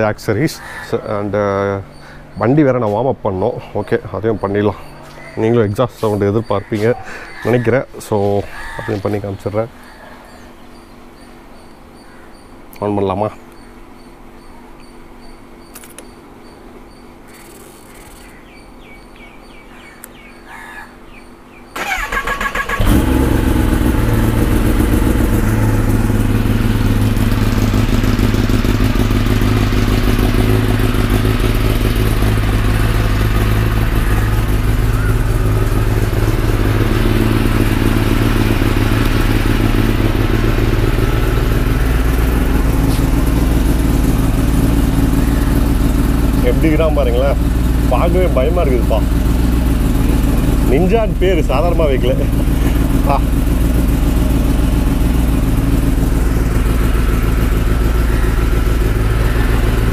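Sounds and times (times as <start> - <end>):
motorcycle engine idling: 0.0 - 12.5, 21.2 - 59.9
motorcycle starter cranking: 21.8 - 25.9.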